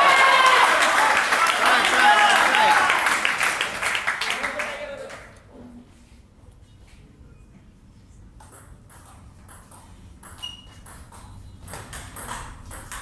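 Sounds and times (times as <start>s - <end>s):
table tennis ball hits: 8.4s - 13.0s.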